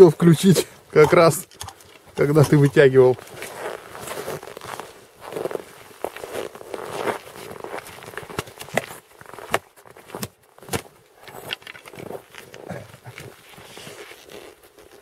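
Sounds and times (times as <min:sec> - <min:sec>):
crunching steps on snow: 0:02.1 - 0:15.0.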